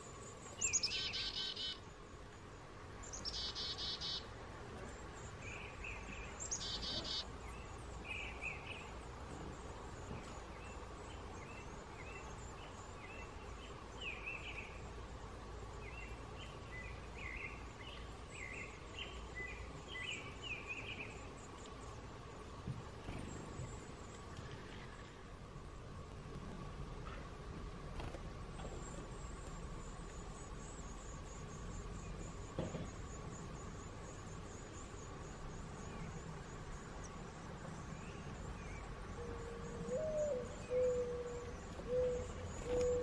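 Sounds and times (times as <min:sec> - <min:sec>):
birds chirping: 0:00.0 - 0:01.9, 0:03.0 - 0:25.2
faint steady hum: 0:00.0 - 0:43.0.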